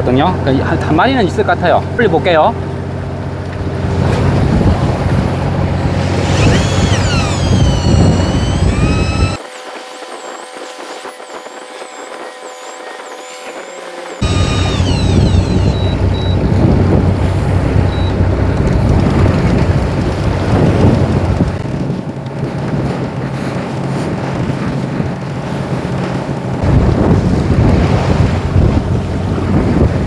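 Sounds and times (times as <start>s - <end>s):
wind on microphone: 3.6s - 30.0s
wash of sea swell: 3.8s - 20.9s.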